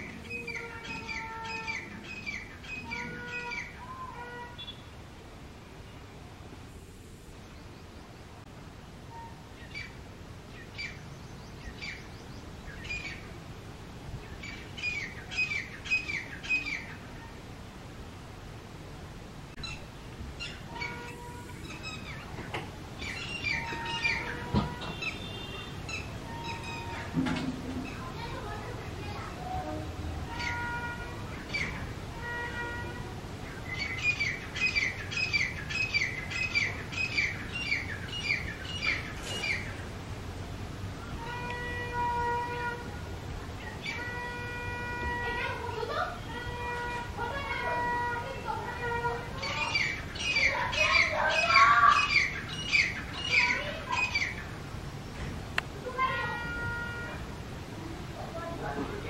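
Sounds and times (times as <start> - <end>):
francolin calling: 23.0 - 27.1, 33.4 - 39.8, 49.3 - 54.6.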